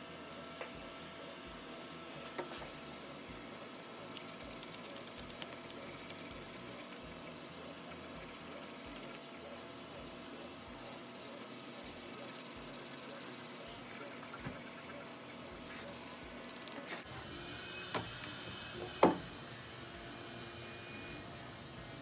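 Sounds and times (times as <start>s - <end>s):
sandpaper rubbing on wood: 2.5s - 17.0s.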